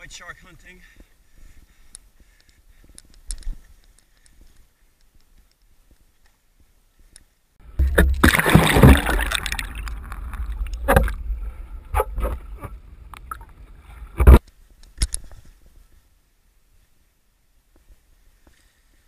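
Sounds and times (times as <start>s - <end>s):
water splashing and gurgling: 7.7s - 14.4s.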